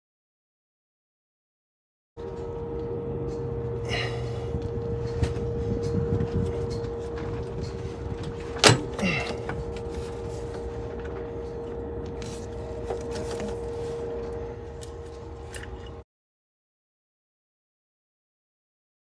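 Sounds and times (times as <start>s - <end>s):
steady hum: 2.2s - 16.0s.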